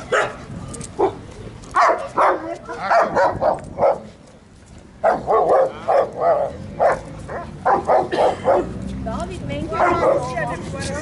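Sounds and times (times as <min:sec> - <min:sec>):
dog barking: 0:00.1 - 0:00.4, 0:01.8 - 0:04.1, 0:05.0 - 0:08.7, 0:09.8 - 0:10.3.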